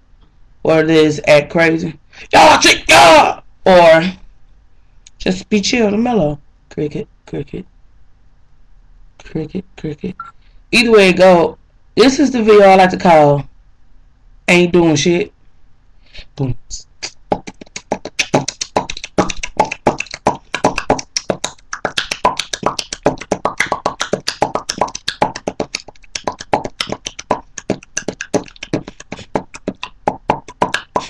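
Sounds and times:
person beatboxing: 16.7s - 31.0s.

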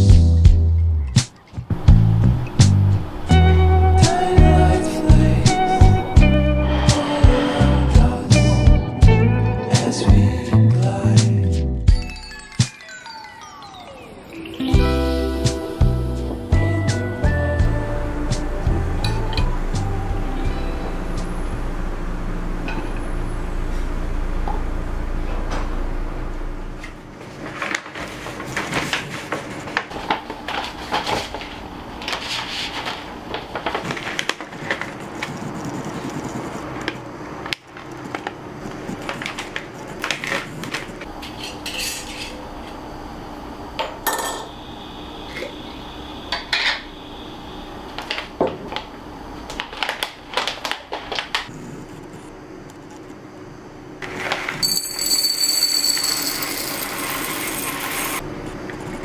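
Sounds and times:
paper bag crinkling: 27.2s - 37.0s, 49.5s - 51.5s
glass jar and lid clinking: 54.6s - 57.4s
coffee beans pouring into jar: 54.6s - 58.2s.

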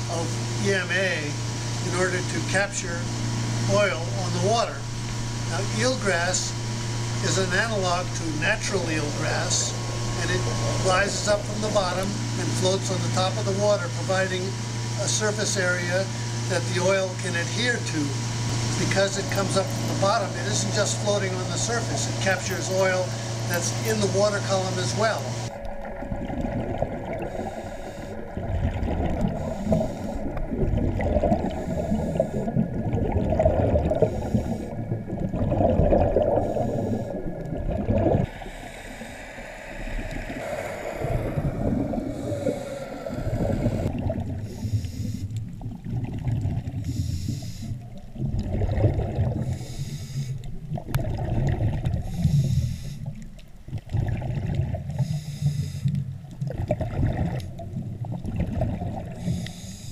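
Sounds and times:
underwater breathing bubbles gurgling: 1.9s - 17.7s, 18.4s - 59.9s.

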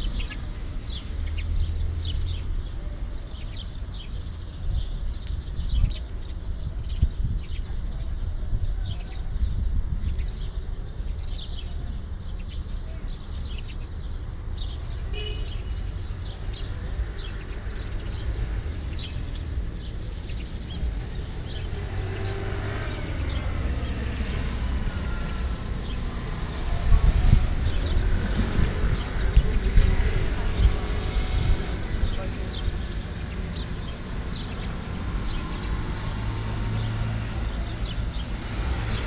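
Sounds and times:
wind buffeting microphone: 1.6s - 12.7s, 15.8s - 39.0s
passing engine: 19.5s - 39.0s.

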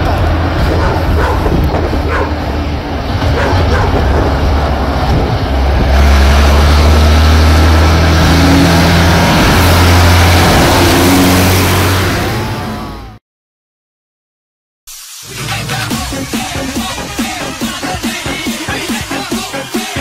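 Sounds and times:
tractor diesel engine running: 0.0s - 13.2s.

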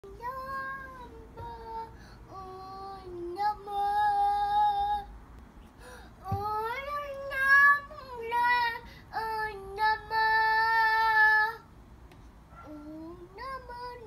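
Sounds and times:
toddler singing: 6.2s - 11.6s.

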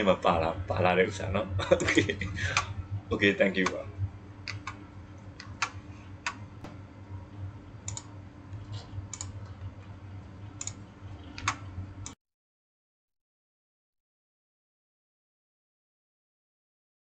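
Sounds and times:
low electrical hum: 0.0s - 12.2s.

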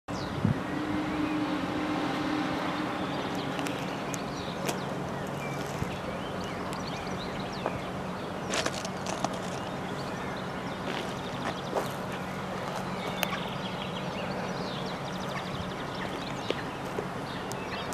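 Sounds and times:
higher engine note: 0.1s - 8.4s
diesel railcar engine drone: 0.1s - 17.9s.

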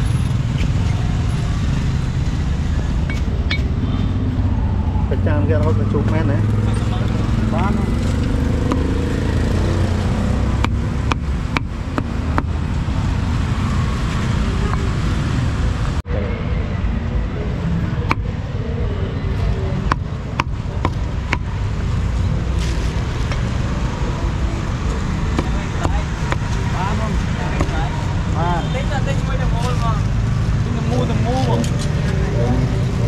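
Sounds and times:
street traffic rumble: 0.0s - 33.0s
cleaver chopping on wooden block: 8.5s - 9.0s, 10.1s - 12.6s, 19.8s - 21.5s, 25.3s - 26.5s.

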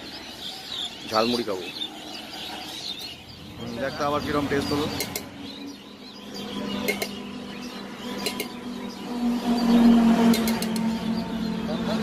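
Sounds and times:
road traffic hum: 0.0s - 12.0s
truck passing close by: 5.6s - 12.0s.

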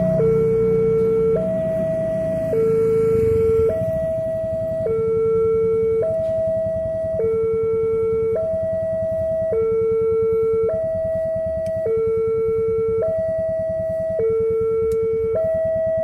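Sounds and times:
low rumble: 0.0s - 7.2s
two-tone level crossing alarm: 0.0s - 16.0s.

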